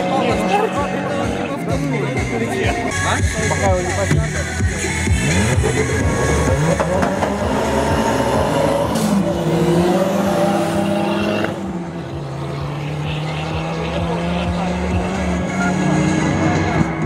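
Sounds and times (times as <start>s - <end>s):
engines revving hard: 0.0s - 17.0s.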